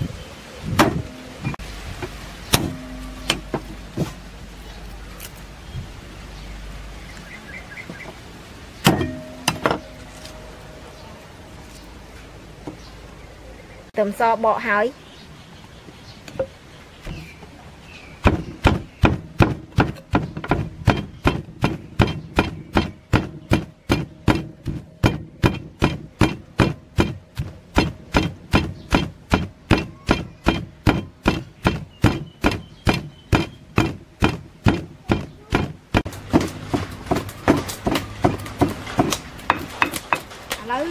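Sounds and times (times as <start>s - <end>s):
pestle pounding in stone mortar: 18.2s - 40.3s.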